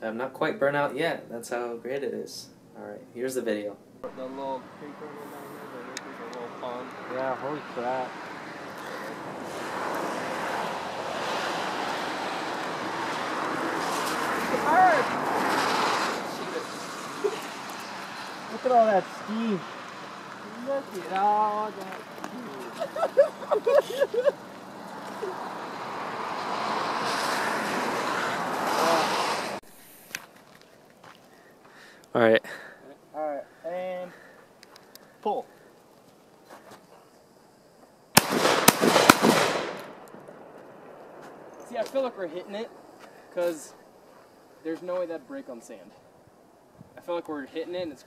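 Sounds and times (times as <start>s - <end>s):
wind rushing: 4.1s - 29.6s
tyres hissing on wet road: 4.2s - 30.3s.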